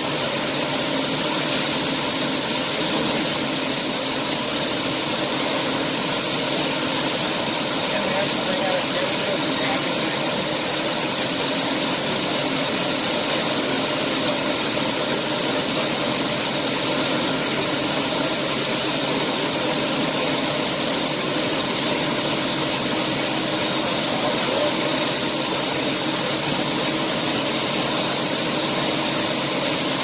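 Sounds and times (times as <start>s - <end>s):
combine harvester running: 0.0s - 30.0s
grain pouring from auger: 0.0s - 30.0s.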